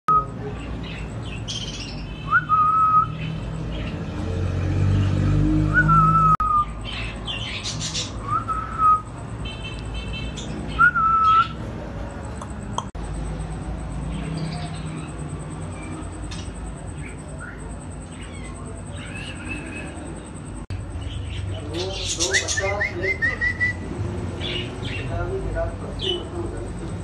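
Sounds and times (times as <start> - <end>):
parrot whistling: 10.7 - 11.6.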